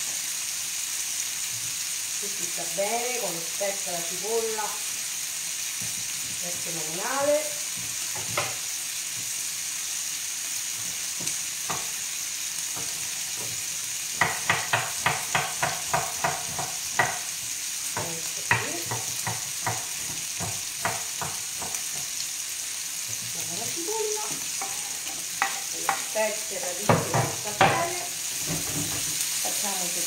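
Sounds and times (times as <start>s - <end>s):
meat sizzling in a pan: 0.0s - 30.0s
knife chopping on wooden board: 14.2s - 17.3s, 18.4s - 22.1s.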